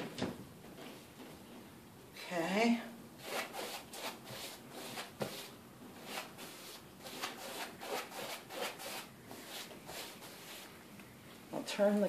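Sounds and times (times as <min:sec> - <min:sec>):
paintbrush scrubbing rough wall: 0:03.2 - 0:10.7.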